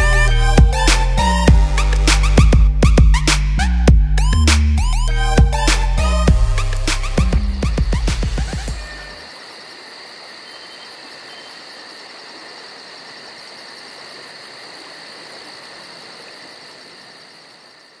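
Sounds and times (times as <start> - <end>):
very high pulsing insect chirp: 4.2 - 18.0
insects trilling: 7.2 - 18.0.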